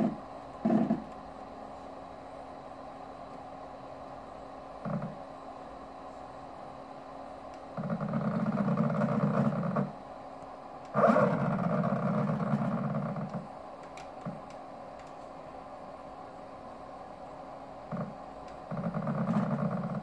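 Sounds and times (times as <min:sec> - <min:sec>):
motor buzzing harshly: 0:10.9 - 0:13.4.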